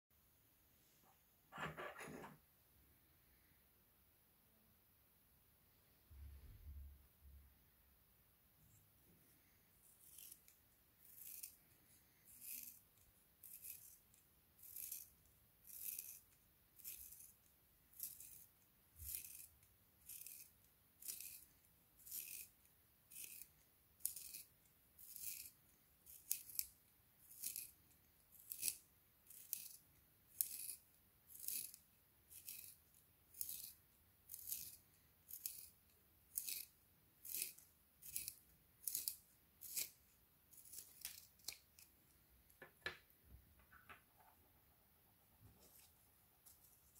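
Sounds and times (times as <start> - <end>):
pencil sharpener scraping: 9.8 - 11.6, 12.2 - 17.4, 18.0 - 22.5, 23.1 - 26.7, 27.3 - 41.9.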